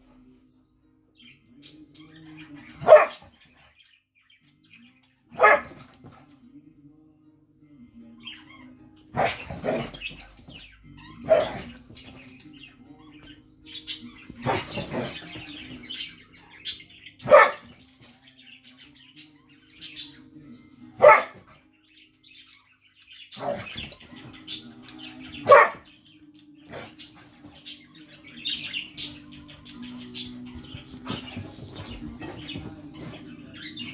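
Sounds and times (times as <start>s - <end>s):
dogs barking: 2.6s - 3.6s, 5.3s - 6.1s, 9.1s - 12.3s, 14.2s - 18.0s, 21.0s - 21.6s, 23.3s - 24.6s, 25.2s - 27.8s, 30.0s - 33.9s.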